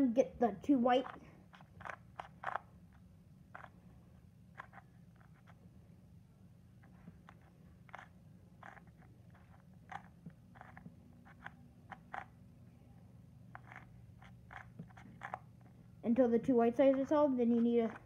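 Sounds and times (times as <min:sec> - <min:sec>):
low steady hum: 0:00.0 - 0:18.0
plastic puzzle clicks: 0:01.0 - 0:02.7, 0:13.5 - 0:15.4.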